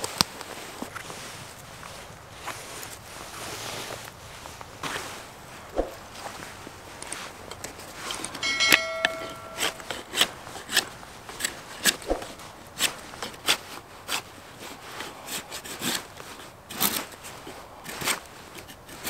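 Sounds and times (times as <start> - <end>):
brief chime: 8.4 - 10.0
knife shaving wood: 9.8 - 19.0.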